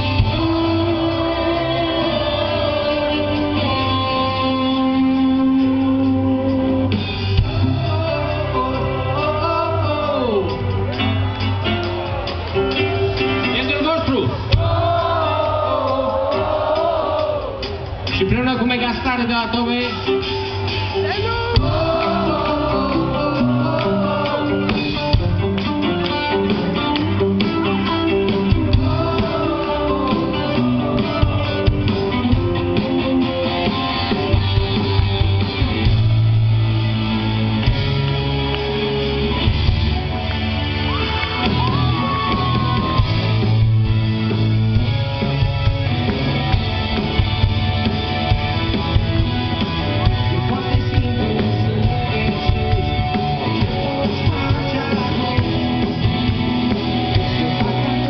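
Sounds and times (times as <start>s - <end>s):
person singing: 0.0s - 10.7s, 21.2s - 25.4s, 28.5s - 32.6s, 50.0s - 56.2s
live rock band playing: 0.0s - 58.0s.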